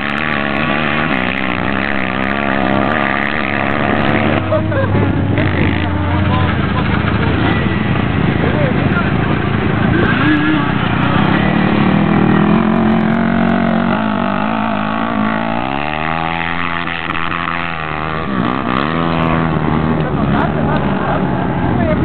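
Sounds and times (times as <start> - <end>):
quad bike engine revving: 0.0 - 22.0
quad bike engines running: 0.0 - 22.0.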